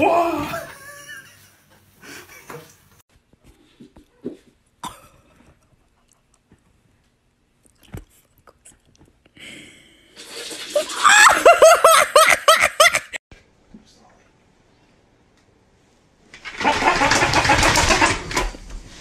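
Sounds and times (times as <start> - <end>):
person laughing loudly: 10.8 - 13.2.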